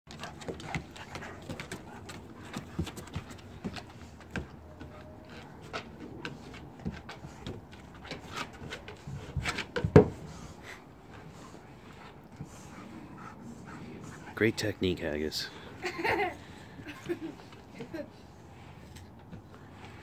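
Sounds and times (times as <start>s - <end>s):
dog claws clicking on wooden boards: 0.1s - 10.2s.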